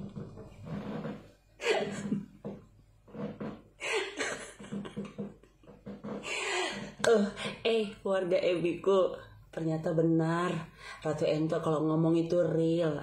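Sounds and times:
woman laughing: 1.6s - 2.3s, 3.8s - 7.0s.

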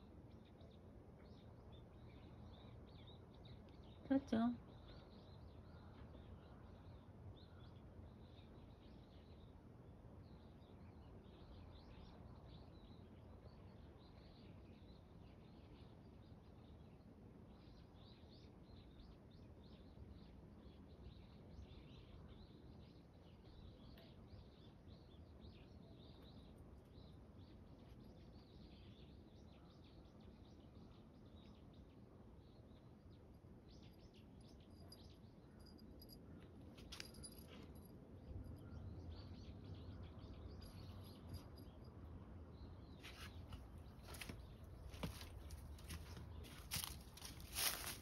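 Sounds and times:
faint bird chirps: 10.2s - 48.0s
rustling: 43.0s - 48.0s.

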